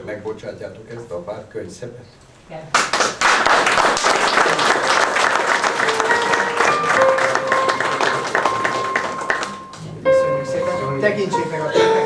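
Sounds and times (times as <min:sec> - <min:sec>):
audience applauding: 0:02.8 - 0:09.9
music with held notes: 0:05.5 - 0:12.0.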